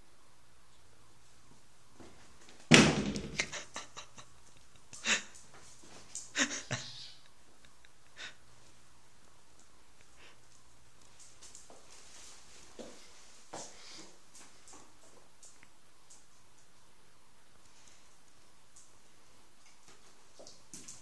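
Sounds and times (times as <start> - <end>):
loud thump with rattle: 2.7 - 3.6.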